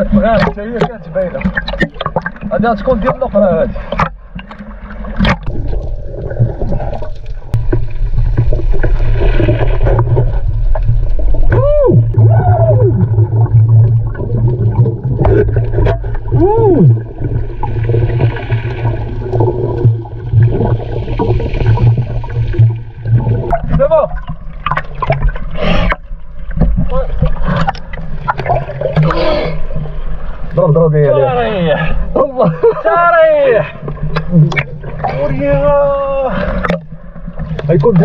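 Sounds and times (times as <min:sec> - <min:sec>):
steady low underwater hum: 0:00.0 - 0:38.0
exhaled bubbles hissing: 0:03.8 - 0:23.5.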